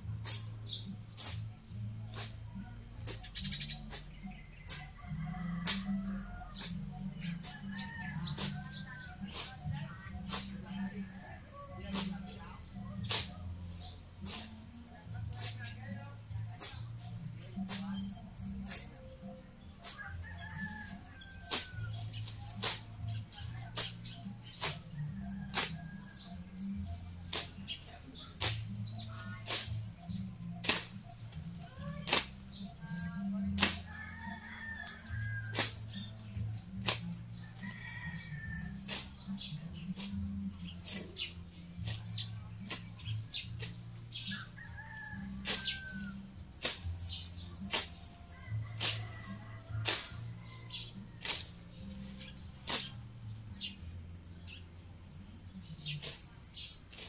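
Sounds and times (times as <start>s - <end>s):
low background music: 0.0s - 57.0s
machete cutting grass: 0.1s - 4.9s, 5.6s - 6.8s, 7.4s - 10.6s, 11.9s - 12.4s, 13.0s - 15.9s, 16.5s - 19.0s, 19.8s - 34.0s, 34.6s - 37.8s, 38.4s - 49.2s, 49.8s - 53.4s, 55.8s - 57.0s
birds chirping faintly: 11.1s - 39.0s.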